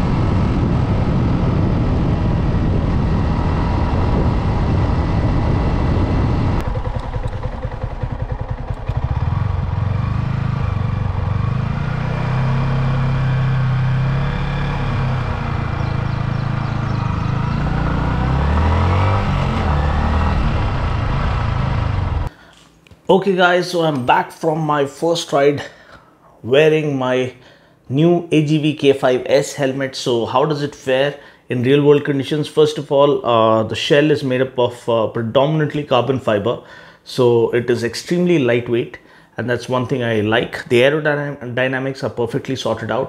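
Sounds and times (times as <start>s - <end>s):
wind rushing over microphone: 0.0s - 12.4s, 13.2s - 22.3s
motorcycle engine running: 0.0s - 22.3s.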